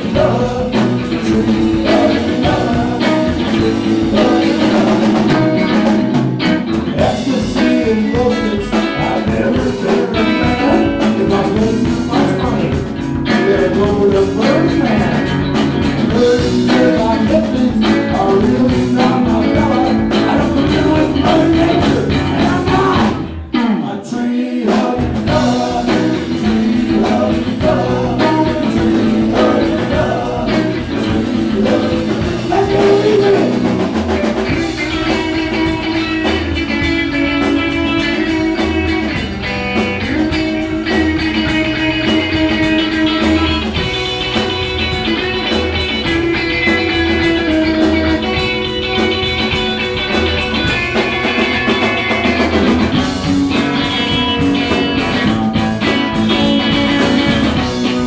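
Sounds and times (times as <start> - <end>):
drum kit: 0.0 - 23.8, 24.6 - 58.0
man singing: 0.0 - 39.2, 40.0 - 44.8
electric and acoustic guitars: 0.0 - 58.0.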